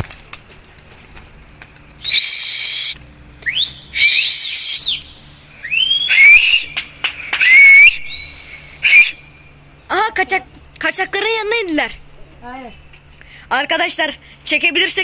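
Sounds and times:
person whistling loudly: 0:02.0 - 0:06.7, 0:07.3 - 0:09.2.

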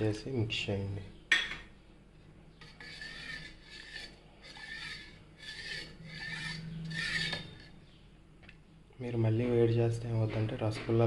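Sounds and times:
spoon scraping bottom of pot: 0:02.6 - 0:07.8.

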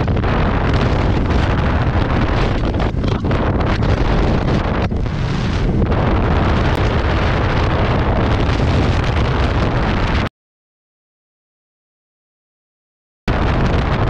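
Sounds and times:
motorcycle road and engine noise: 0:00.0 - 0:10.3, 0:13.3 - 0:14.0
wind buffeting microphone: 0:00.0 - 0:10.3, 0:13.3 - 0:14.0.

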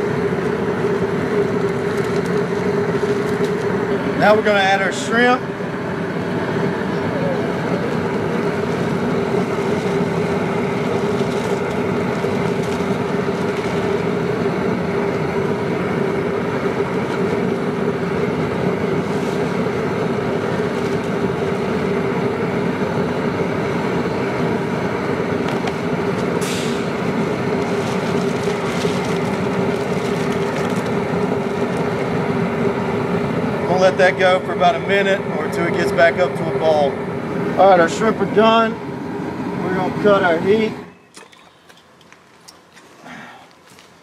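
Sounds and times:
propane burner roaring: 0:00.0 - 0:44.0
brief gas hiss: 0:26.4 - 0:26.9.

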